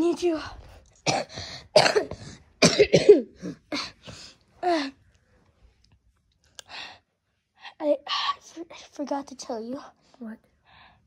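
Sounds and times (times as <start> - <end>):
person coughing hard: 1.0 - 4.0.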